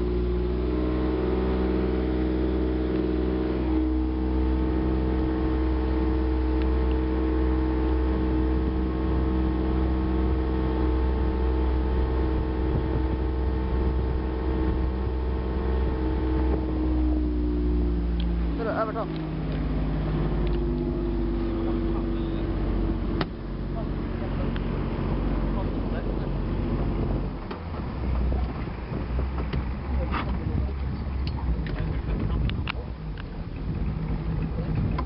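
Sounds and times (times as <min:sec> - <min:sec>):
outboard motor running: 0:00.0 - 0:35.0
wind rumble on microphone: 0:00.0 - 0:35.0.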